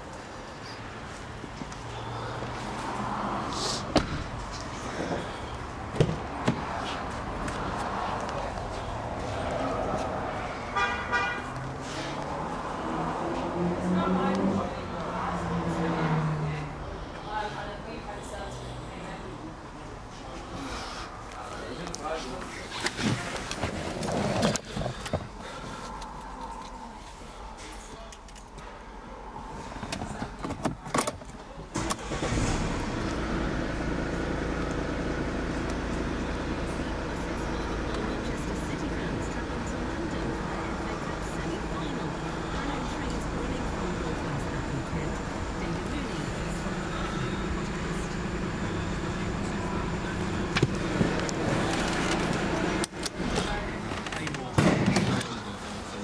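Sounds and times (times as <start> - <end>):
car engine starting and idling: 29.8 - 56.0.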